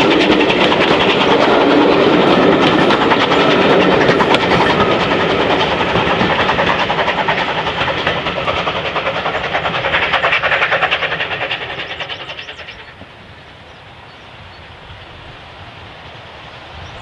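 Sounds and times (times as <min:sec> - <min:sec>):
train wheels clicking over rail joints: 0:00.0 - 0:13.4
distant locomotive rumble: 0:00.0 - 0:17.0.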